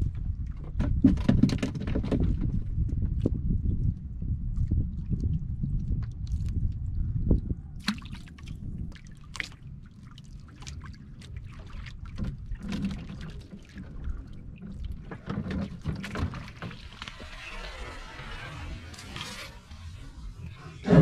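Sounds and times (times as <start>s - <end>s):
wind on microphone: 0.0s - 9.1s, 11.9s - 21.0s
water lapping against boat hull: 0.0s - 21.0s
small splashes and drips: 7.8s - 17.3s.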